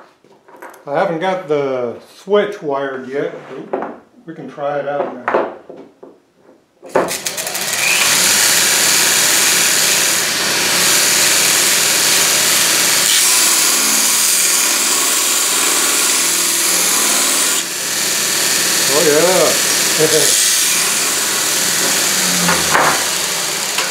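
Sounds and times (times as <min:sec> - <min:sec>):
belt grinder motor running: 0:07.1 - 0:23.9
steel bar grinding rasp: 0:07.4 - 0:23.9.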